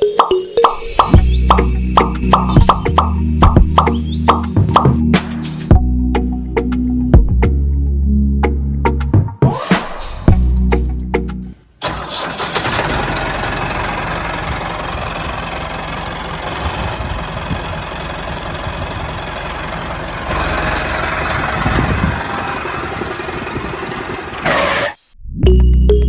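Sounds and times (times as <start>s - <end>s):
tractor engine running: 0.0s - 5.0s, 11.8s - 25.0s.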